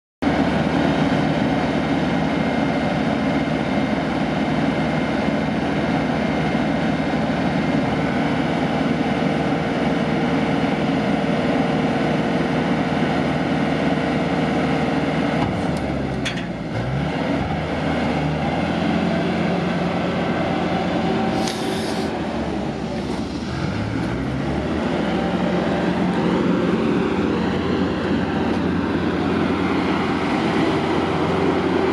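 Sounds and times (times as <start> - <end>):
diesel engine running: 0.2 - 31.9
hydraulic whine: 18.2 - 31.9.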